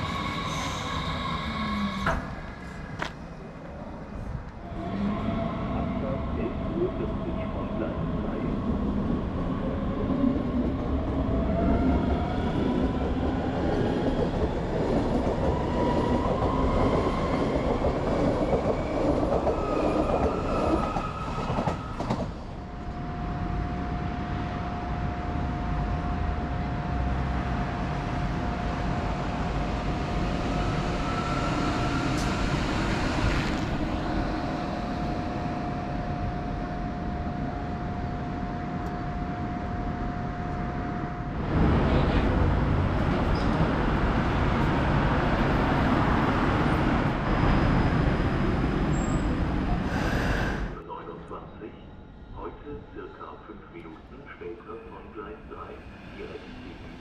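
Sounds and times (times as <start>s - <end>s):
wheels rumbling on rail: 0.0s - 50.8s.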